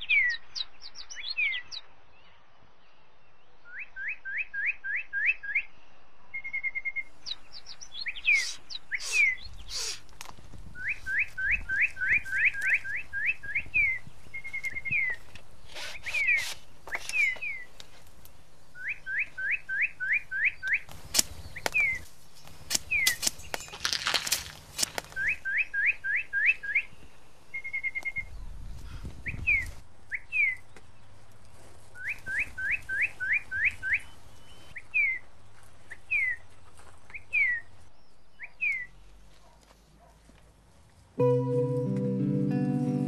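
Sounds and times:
high-pitched whistled calls: 0:08.2 - 0:10.0
sharp clicks: 0:20.6 - 0:25.2.

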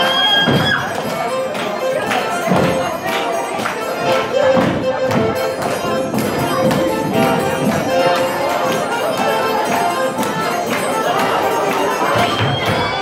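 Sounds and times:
live dance band music: 0:00.0 - 0:13.0.

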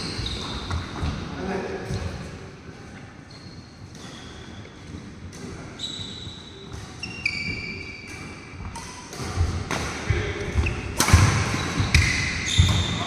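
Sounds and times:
shoes squeaking on wooden floor: 0:00.0 - 0:01.2, 0:03.2 - 0:08.8, 0:10.1 - 0:13.0
racket striking shuttlecock: 0:08.1 - 0:10.0, 0:10.6 - 0:12.9.

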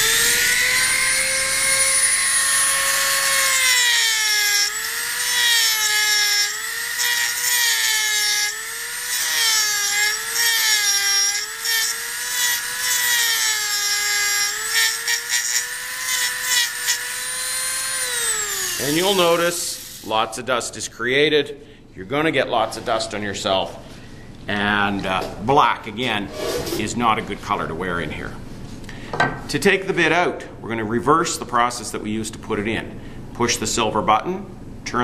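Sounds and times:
bit cutting into wood: 0:00.0 - 0:20.1
rotary tool whining: 0:00.0 - 0:20.1.

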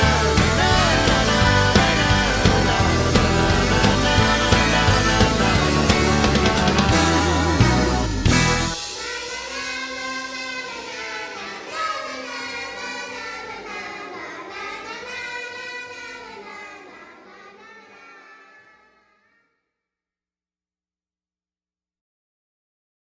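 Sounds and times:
rock band playing: 0:00.0 - 0:10.5.

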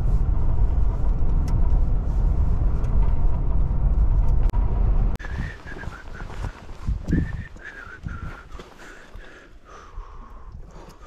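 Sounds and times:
engine and road noise rumble: 0:00.0 - 0:11.0
faint clicks: 0:10.3 - 0:11.0.

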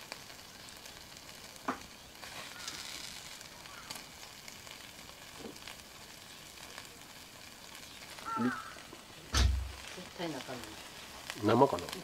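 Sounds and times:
food sizzling on grill plate: 0:00.0 - 0:12.0
heavy thump: 0:09.3 - 0:09.8.

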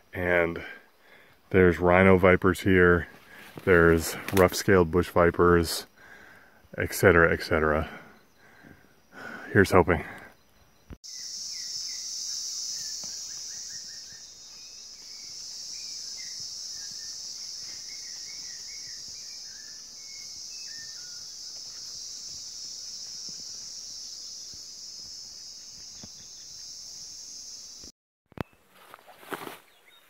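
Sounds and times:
insect chorus drone: 0:00.0 - 0:27.9
bird chirps: 0:10.2 - 0:28.6.

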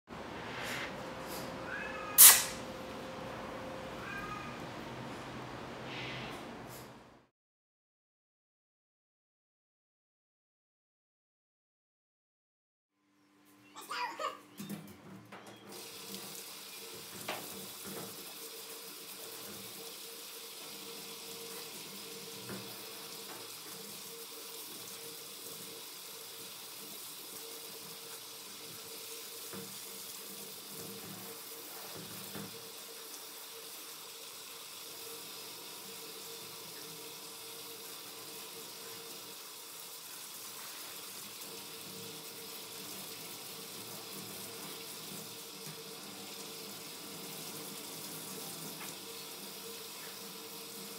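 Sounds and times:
water spraying from a hose: 0:02.2 - 0:02.6
water splashing into a metal sink: 0:15.7 - 0:50.9.

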